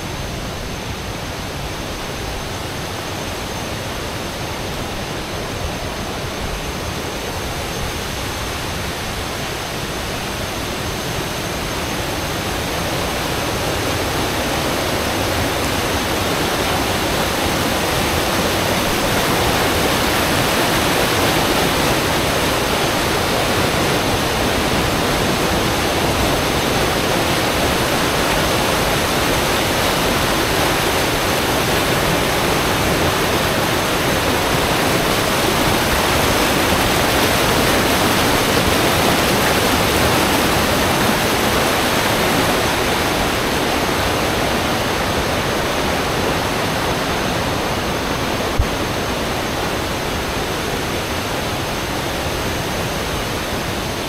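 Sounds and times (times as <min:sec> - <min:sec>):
river rapids rushing: 0:00.0 - 0:54.0.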